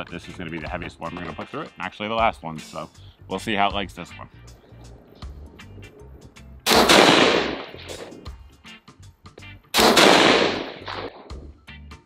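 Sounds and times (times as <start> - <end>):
rifle shot with echo: 6.7 - 8.3, 9.8 - 11.4.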